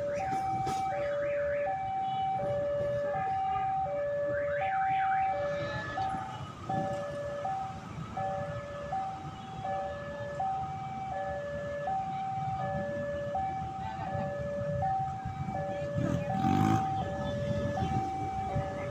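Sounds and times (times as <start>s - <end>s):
passing train rumble: 12.3s - 18.9s.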